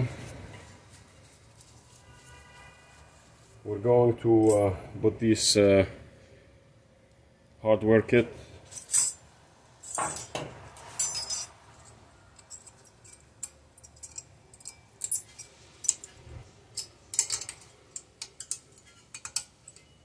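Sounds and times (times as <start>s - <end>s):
metal clips clinking: 9.9s - 20.0s.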